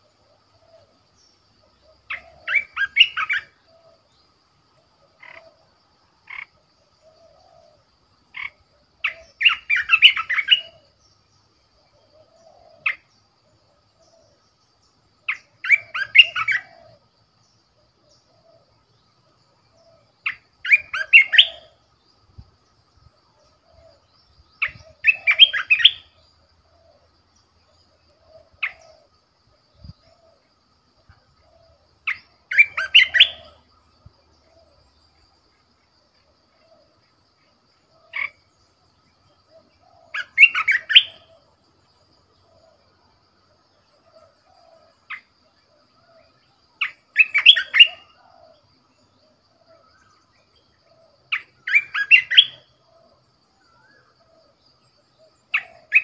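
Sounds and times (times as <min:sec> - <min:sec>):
bulbul singing warbling phrases: 0:23.6 - 0:27.0, 0:31.4 - 0:33.7.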